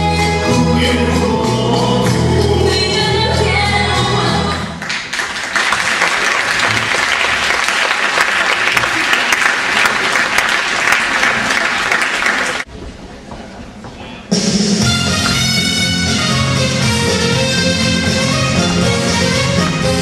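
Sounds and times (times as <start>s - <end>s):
music: 0.0s - 4.8s, 14.3s - 20.0s
audience applauding: 4.8s - 12.7s.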